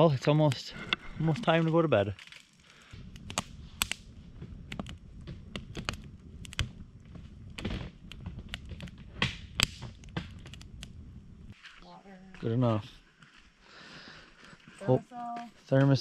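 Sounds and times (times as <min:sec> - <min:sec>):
low rumble of flames: 0:00.0 - 0:11.6
campfire pops and snaps: 0:01.2 - 0:11.6.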